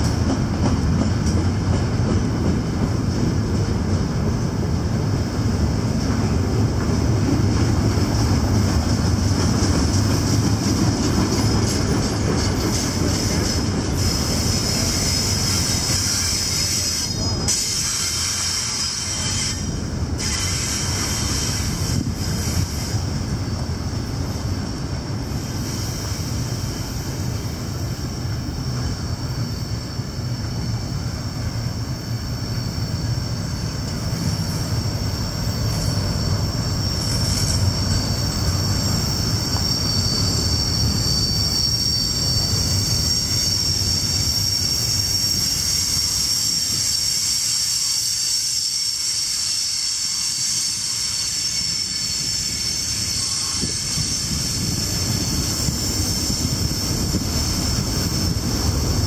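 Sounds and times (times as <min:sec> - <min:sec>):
train rumbling on rails: 0:00.0 - 0:59.0
high-pitched wheel squeal: 0:11.4 - 0:23.2, 0:32.4 - 0:58.4.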